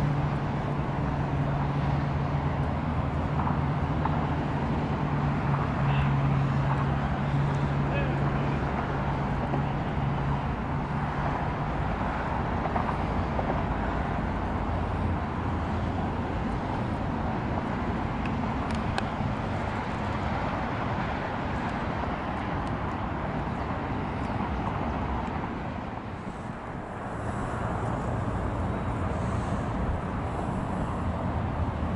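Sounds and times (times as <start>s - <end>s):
distant road traffic: 0.0s - 31.9s.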